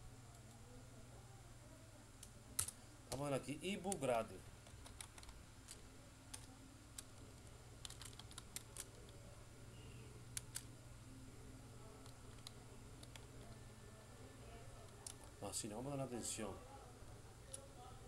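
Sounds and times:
faint low hum: 0.0s - 18.0s
computer keyboard keys clicking: 4.7s - 5.3s, 7.8s - 9.0s.

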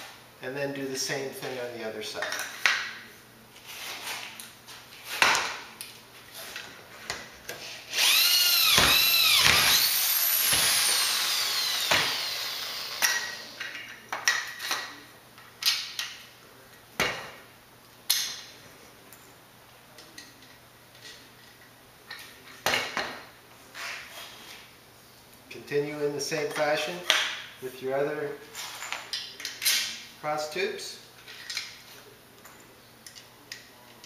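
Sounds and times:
clicks and knocks of parts handled: 2.2s - 3.0s, 13.0s - 16.8s, 31.2s - 31.8s, 32.4s - 34.0s
electric drill boring through metal: 7.9s - 13.6s.

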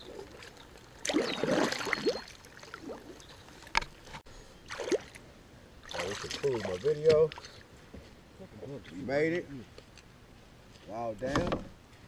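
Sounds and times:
paddle splashing in water: 0.0s - 5.2s.

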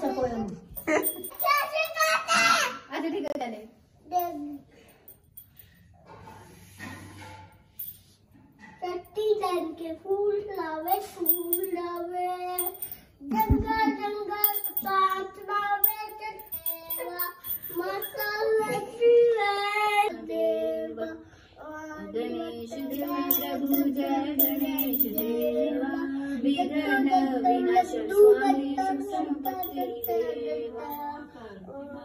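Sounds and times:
brass hand bell ringing: 12.6s - 13.0s, 14.4s - 14.9s, 15.9s - 18.2s, 22.9s - 25.4s
child singing: 18.2s - 22.7s.

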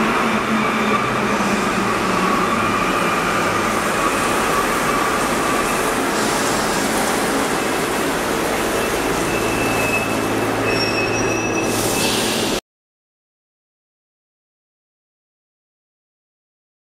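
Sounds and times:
train rolling past platform: 0.0s - 12.6s.

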